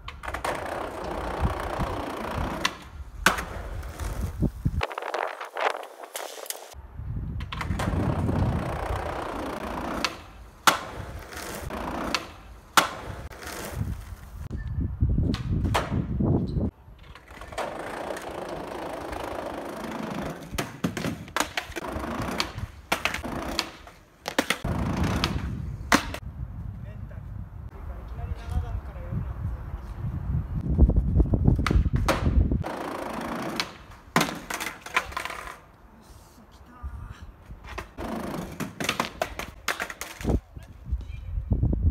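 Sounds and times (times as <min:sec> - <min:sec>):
skateboard clacks: 0:00.0 - 0:03.6, 0:07.4 - 0:13.6, 0:17.0 - 0:26.2, 0:31.6 - 0:35.7, 0:37.7 - 0:40.4
skateboard rolling on concrete: 0:00.0 - 0:14.5, 0:15.2 - 0:26.3, 0:28.2 - 0:36.5, 0:37.3 - 0:40.8.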